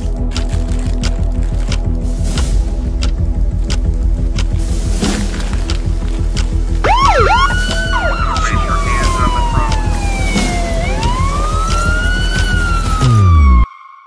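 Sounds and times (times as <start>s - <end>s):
background music with steady beat: 0.0s - 13.7s
siren wailing: 6.8s - 13.8s.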